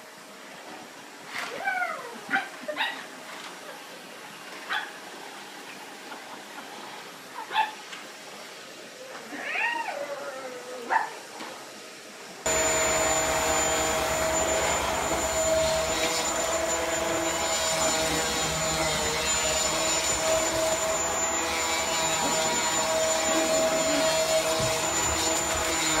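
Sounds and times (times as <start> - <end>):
upright vacuum cleaner running: 12.5 - 26.0.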